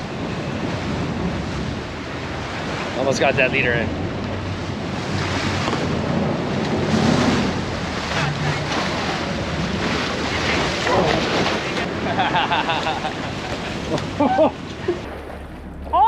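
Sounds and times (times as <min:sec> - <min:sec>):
boat engines humming: 0:00.0 - 0:16.0
water churning along hull: 0:00.0 - 0:16.0
wind buffeting microphone: 0:00.0 - 0:16.0.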